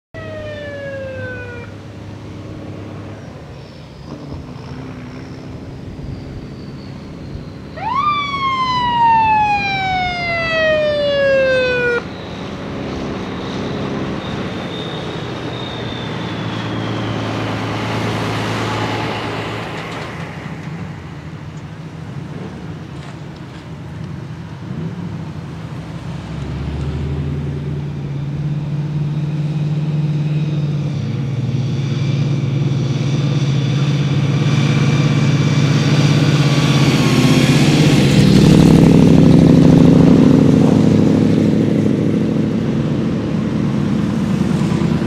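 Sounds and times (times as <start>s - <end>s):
vehicle siren wailing: 0.2s - 2.0s, 5.9s - 19.4s
cars and trucks driving past: 0.2s - 45.0s.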